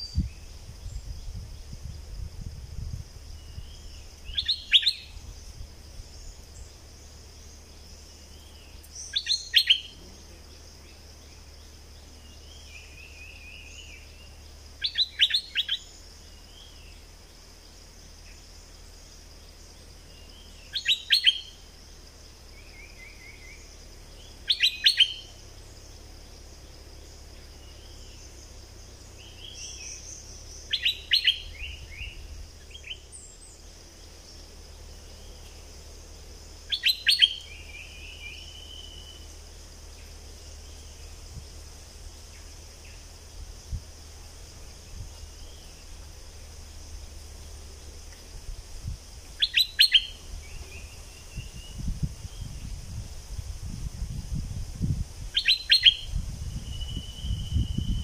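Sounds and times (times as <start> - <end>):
soft bird chirps and trills: 2.8 - 53.0, 55.3 - 58.0
bird song bursts: 3.3 - 17.1, 19.5 - 35.6, 36.4 - 41.4, 44.7 - 46.4, 49.4 - 52.8, 55.3 - 58.0.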